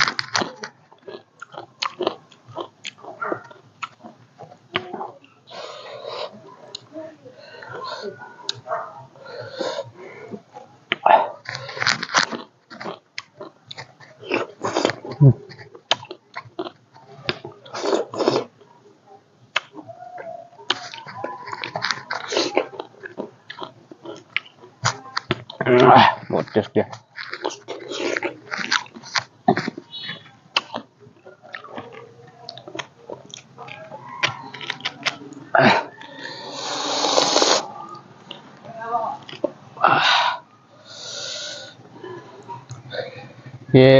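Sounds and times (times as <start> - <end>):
chewing and biting fruit: 0.0 - 5.2, 10.9 - 18.6, 19.5 - 19.9, 20.7 - 25.9, 27.1 - 38.6, 39.2 - 39.6.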